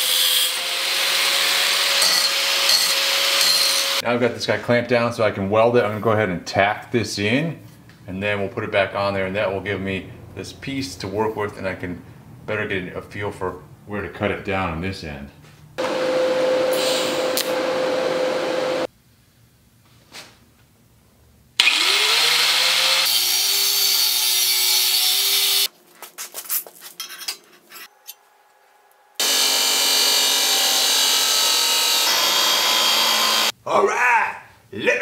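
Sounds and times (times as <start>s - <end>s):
angle grinder cutting steel: 0.0s - 4.0s, 21.6s - 25.7s, 29.2s - 33.5s
chop saw cutting steel: 0.0s - 4.0s, 21.6s - 25.7s, 29.2s - 33.5s.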